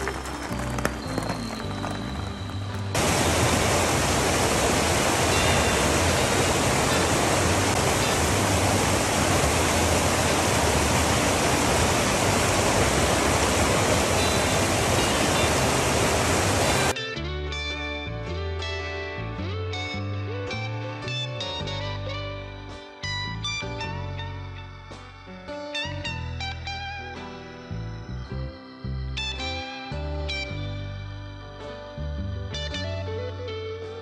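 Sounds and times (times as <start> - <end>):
background music: 0.0 - 3.6, 16.7 - 34.0.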